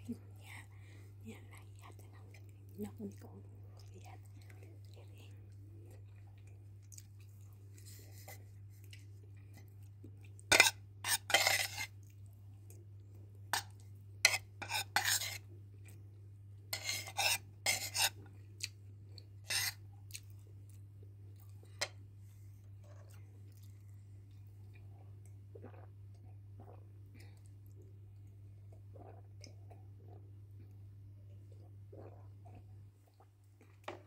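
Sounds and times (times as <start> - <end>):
cutlery scraping on plate: 10.5 - 11.9, 14.3 - 15.4, 16.8 - 18.1, 19.5 - 19.8.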